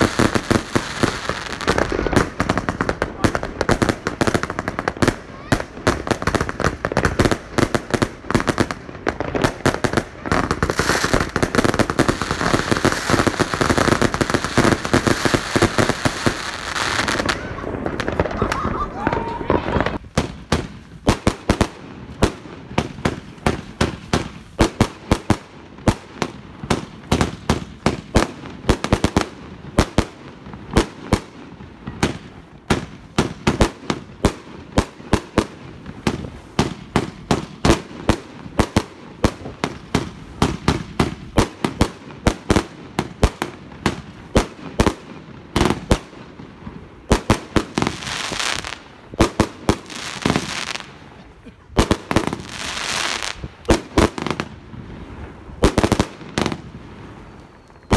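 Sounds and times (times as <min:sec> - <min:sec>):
fireworks hissing rush: 0:00.0 - 0:25.4
fireworks bangs: 0:00.0 - 0:57.9.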